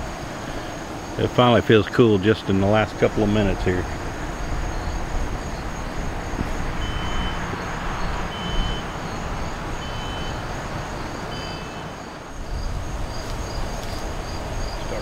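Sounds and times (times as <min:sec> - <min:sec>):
insects trilling: 0:00.0 - 0:15.0
wind rumbling on microphone: 0:02.6 - 0:11.4, 0:12.2 - 0:15.0.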